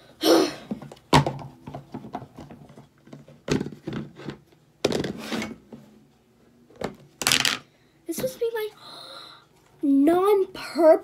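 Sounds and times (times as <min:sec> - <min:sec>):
plastic containers knocking: 0:00.8 - 0:05.2.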